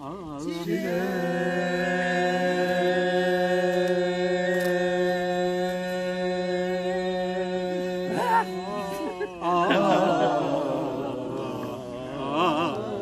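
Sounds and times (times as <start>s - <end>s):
voices singing folk song: 0.0s - 13.0s.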